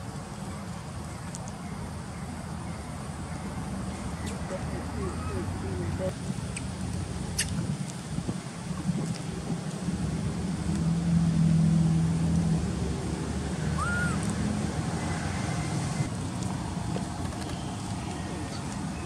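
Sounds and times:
vehicle engine humming: 0.0 - 19.0
rising and falling whistle: 13.7 - 14.3.

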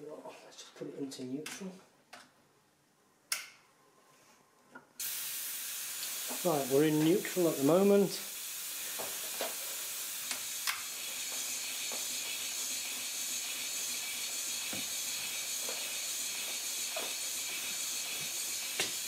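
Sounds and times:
compressed air hissing: 5.0 - 19.0.

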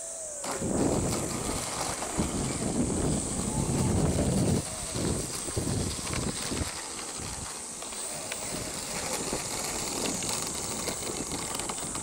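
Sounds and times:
high-pitched insect buzz: 0.0 - 5.7
electric model plane motor: 0.0 - 12.0.

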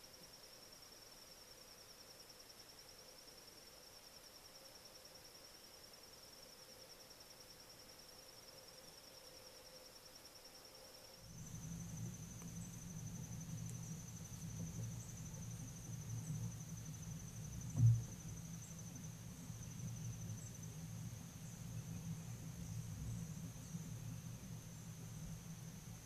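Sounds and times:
insect chorus trilling: 0.0 - 26.0
low rumble: 11.2 - 26.0
dull thump: 11.4 - 24.6.

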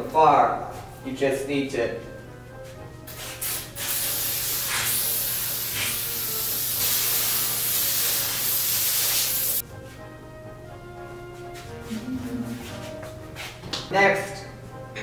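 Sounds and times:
aerosol spray can hissing: 3.1 - 9.6.

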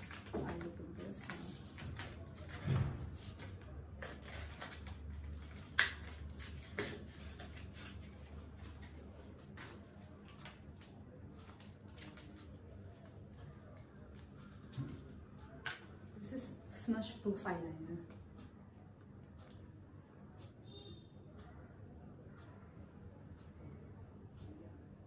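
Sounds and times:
cardboard packaging rustling: 3.2 - 9.0.

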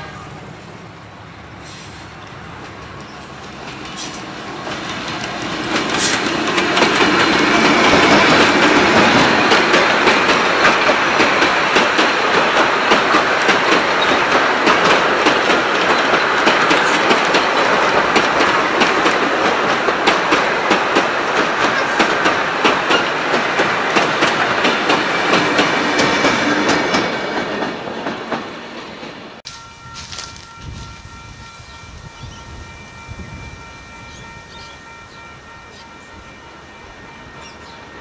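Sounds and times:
train carriages rumbling past: 0.0 - 38.0
wheels clickety-clack over rail joints: 1.9 - 29.4.

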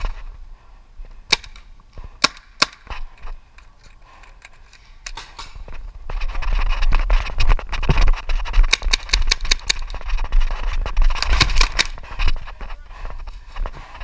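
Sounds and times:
paintball markers firing: 1.2 - 3.0, 8.6 - 10.0, 11.1 - 12.0
rushing rustling noise: 5.6 - 14.0.

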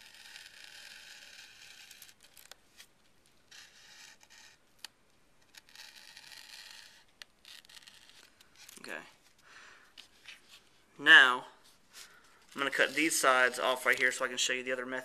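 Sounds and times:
razor blade cutting paper: 0.0 - 2.6, 3.5 - 4.9, 5.5 - 8.8.

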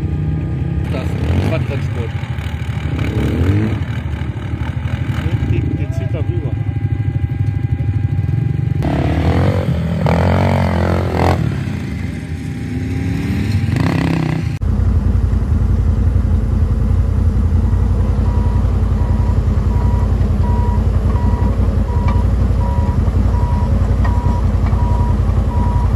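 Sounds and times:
bulldozer diesel engine running: 0.0 - 13.1, 14.6 - 25.9
off-road vehicle engines: 0.0 - 25.9
reversing alarm beeps: 18.2 - 25.9.

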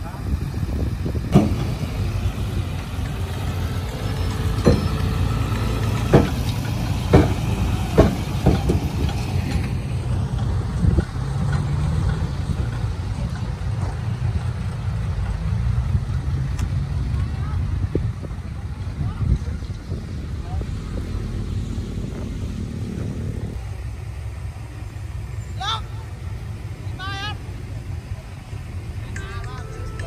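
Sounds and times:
heavy machinery engine rumble: 0.0 - 30.0
sharp knocks and clanks: 1.3 - 14.5.

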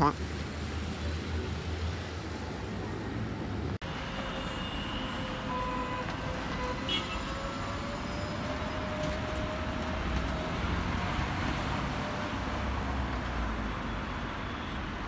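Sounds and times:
passing cars rumbling: 0.1 - 14.3.

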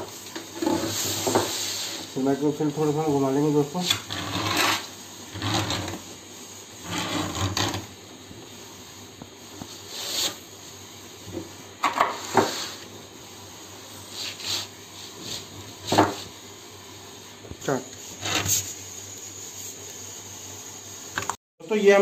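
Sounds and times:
needle scraping laminate: 3.8 - 6.0, 6.8 - 7.8, 18.2 - 18.7.

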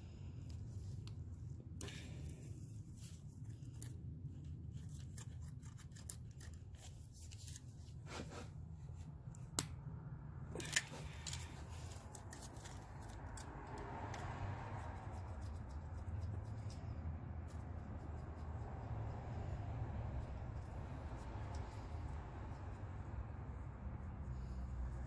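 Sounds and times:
steady low hum: 0.0 - 25.0
metal tool clicking and scraping: 10.5 - 14.3.

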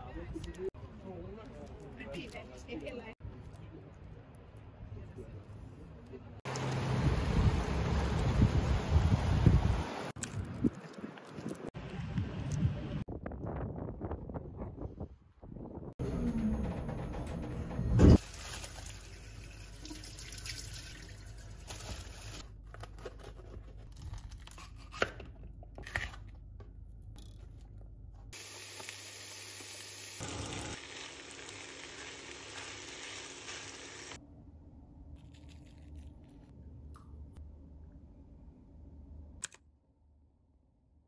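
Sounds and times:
food sizzling in a frying pan: 28.4 - 34.2.

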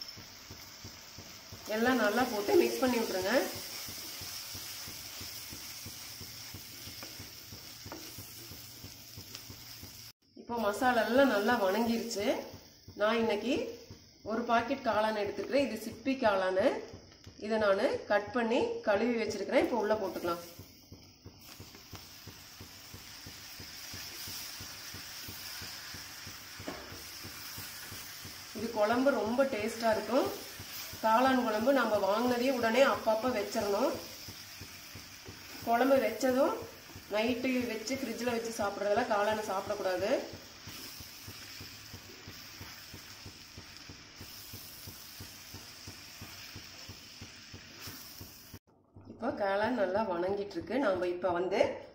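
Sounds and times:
high sizzle: 0.0 - 17.9, 19.3 - 48.7
faint steady hiss: 0.0 - 48.6.

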